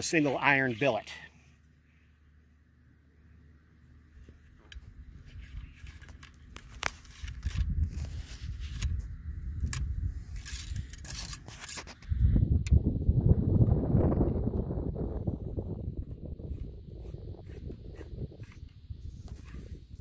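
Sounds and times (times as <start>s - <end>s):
low rumble: 12.2s - 16.8s.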